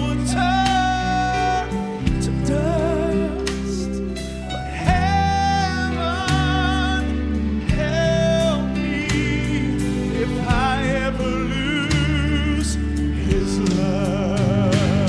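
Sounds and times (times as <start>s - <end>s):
man singing gospel song: 0.0s - 15.0s
sustained instrumental backing: 0.0s - 15.0s.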